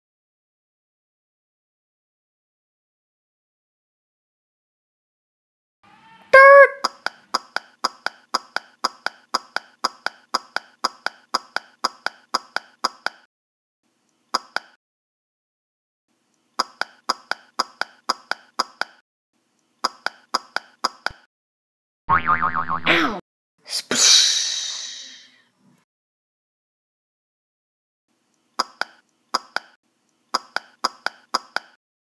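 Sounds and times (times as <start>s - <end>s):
sharp evenly spaced clicks: 6.8s - 13.3s, 16.3s - 21.2s, 28.3s - 31.8s.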